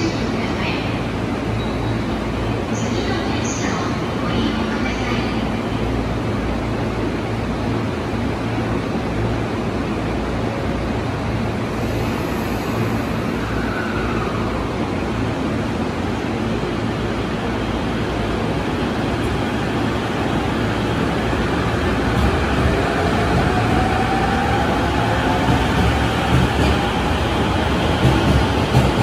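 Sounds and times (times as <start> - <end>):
train rumble: 0.0 - 29.0.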